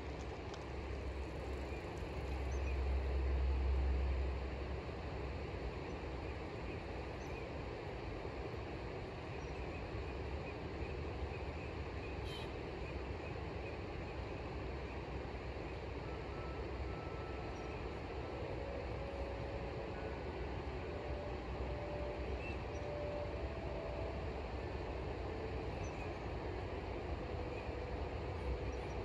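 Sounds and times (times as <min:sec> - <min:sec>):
low unsteady rumble: 0:00.0 - 0:06.3
faint steady tones: 0:00.0 - 0:29.0.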